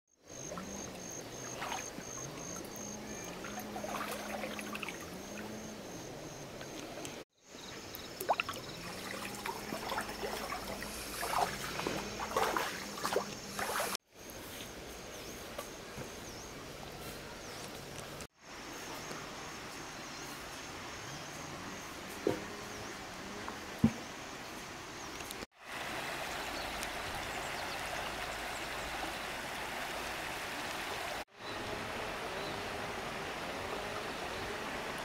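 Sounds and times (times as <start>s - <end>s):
water trickling and splashing: 0.3s - 14.0s, 25.0s - 35.0s.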